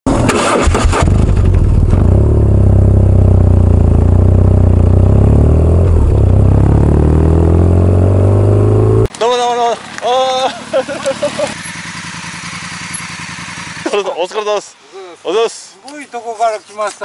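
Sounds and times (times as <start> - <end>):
motorcycle engine running: 0.1 - 9.1, 10.2 - 14.2.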